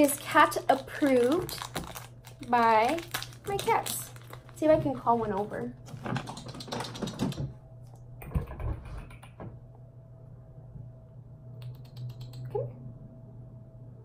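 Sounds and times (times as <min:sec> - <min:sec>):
plastic wrappers crinkling: 0:00.0 - 0:07.2
kissing clicks: 0:11.6 - 0:12.6.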